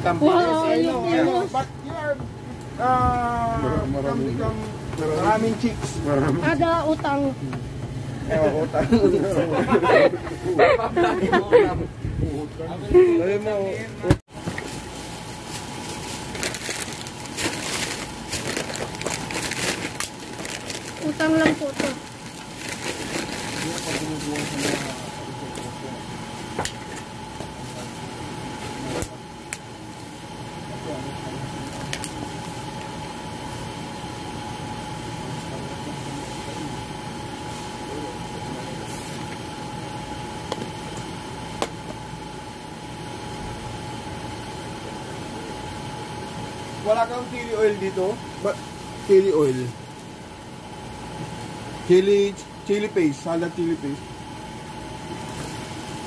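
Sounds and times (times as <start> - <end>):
machine hum with high whine: 0.0 - 56.0
plastic bag rustling: 14.4 - 25.1.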